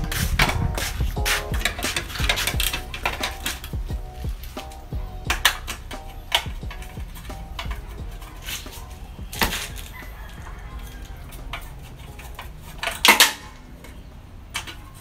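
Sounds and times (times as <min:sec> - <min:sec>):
metal tools clinking and scraping: 0:00.0 - 0:03.8, 0:04.5 - 0:15.0.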